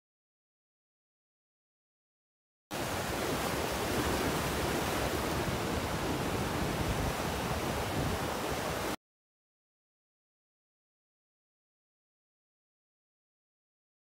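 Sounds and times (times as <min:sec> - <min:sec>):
waves breaking on rocky shore: 0:02.8 - 0:09.0.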